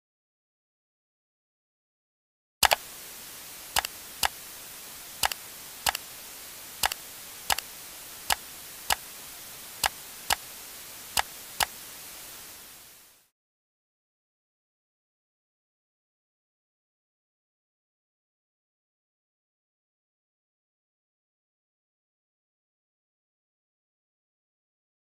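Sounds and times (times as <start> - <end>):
sharp clicks and pops: 2.6 - 2.8, 3.8 - 4.4, 5.2 - 6.0, 6.8 - 7.7, 9.8 - 10.5
steady hiss: 2.6 - 13.3.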